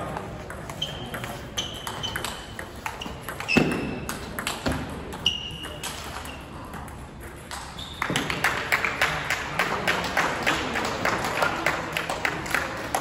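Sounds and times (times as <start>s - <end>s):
people clapping: 7.5s - 13.0s.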